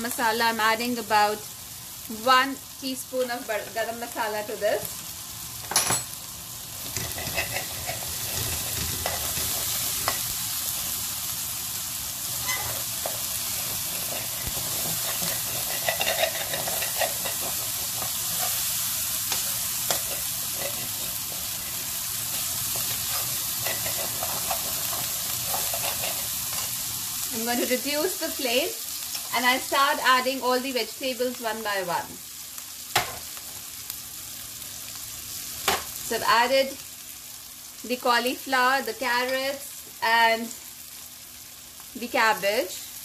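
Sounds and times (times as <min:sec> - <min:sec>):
masala sizzling in oil: 0:00.0 - 0:43.0
metal spoon scraping a pan: 0:06.9 - 0:10.3, 0:12.4 - 0:26.8.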